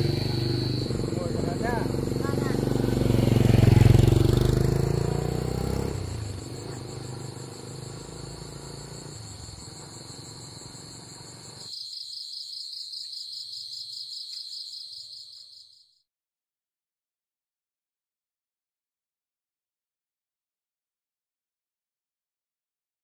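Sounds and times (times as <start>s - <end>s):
motorbike engine: 0.0s - 11.1s
insects chirping: 0.0s - 16.0s.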